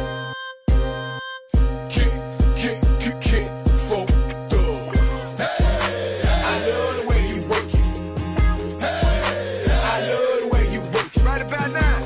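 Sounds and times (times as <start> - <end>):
busy drum pattern: 3.7 - 12.0.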